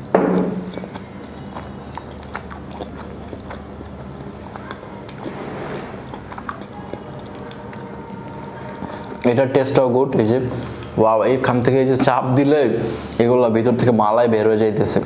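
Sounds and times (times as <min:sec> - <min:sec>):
close chewing: 0:00.4 - 0:09.8.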